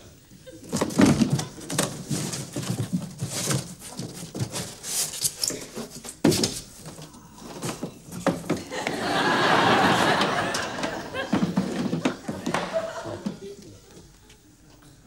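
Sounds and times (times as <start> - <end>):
cardboard box rustling: 0.6 - 8.5.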